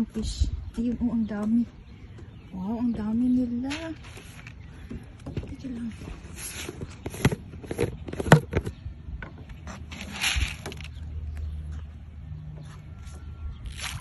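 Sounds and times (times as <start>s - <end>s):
low wind rumble: 0.0s - 14.0s
short rustle: 5.8s - 7.3s
handling clicks and knocks: 6.6s - 11.5s.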